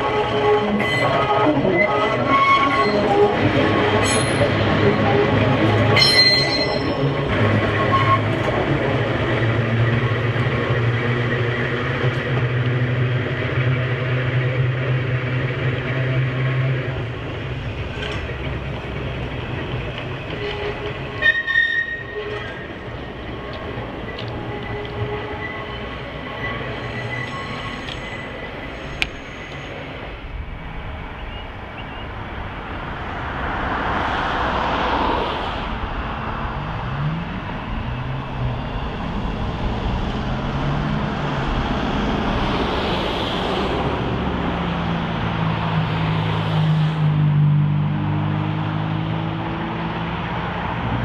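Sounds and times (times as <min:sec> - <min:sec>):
high wheel squeal: 0:00.0 - 0:12.3, 0:15.4 - 0:30.0
wheels on rails: 0:00.0 - 0:30.5
tram humming: 0:00.0 - 0:51.0.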